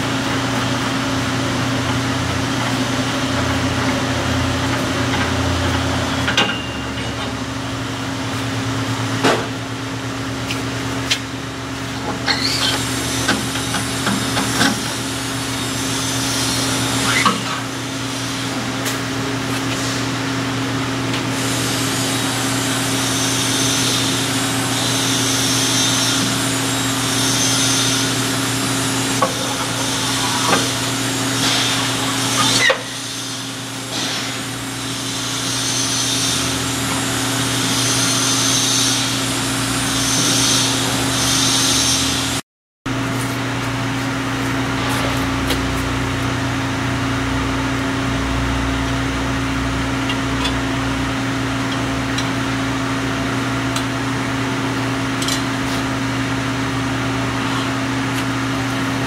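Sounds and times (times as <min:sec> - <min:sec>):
low machine hum: 0:42.1 - 0:59.0.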